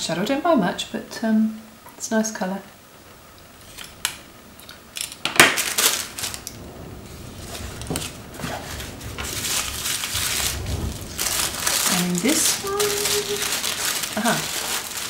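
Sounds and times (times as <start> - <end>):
tissue paper crinkling: 5.0 - 15.0.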